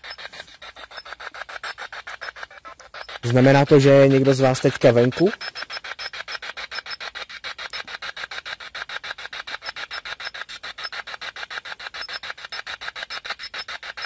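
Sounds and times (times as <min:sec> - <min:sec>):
pulsing radio static: 0:03.2 - 0:05.8.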